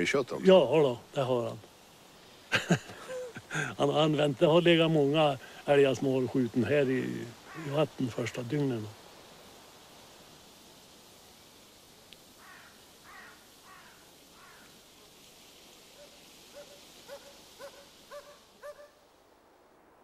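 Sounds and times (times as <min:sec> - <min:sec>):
faint animal calls: 0:07.3 - 0:08.0, 0:12.4 - 0:14.8, 0:15.9 - 0:19.0.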